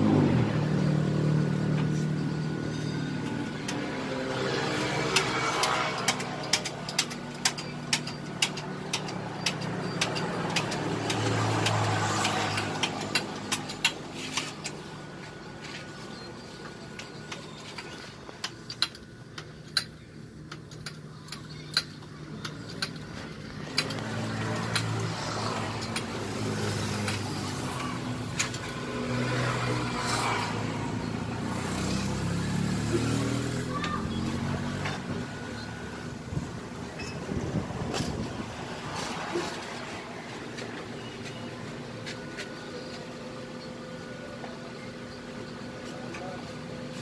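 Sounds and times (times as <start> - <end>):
engine running: 0.0 - 47.0
hydraulic jack clicking: 5.1 - 14.8.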